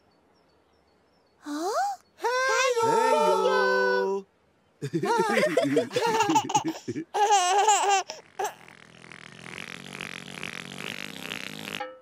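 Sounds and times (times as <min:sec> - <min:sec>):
baby giggling: 0:04.8 - 0:08.7.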